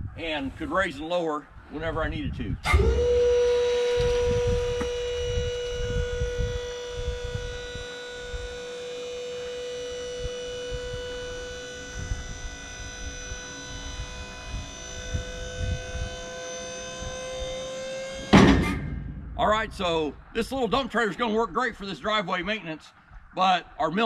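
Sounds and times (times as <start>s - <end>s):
hydraulic pump motor whining: 2.6s - 20.3s.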